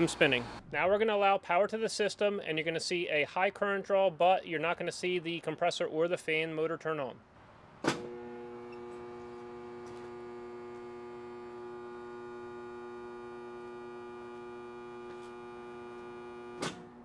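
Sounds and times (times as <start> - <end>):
electrical hum of stalled motors: 0.0 - 0.7, 8.0 - 17.0.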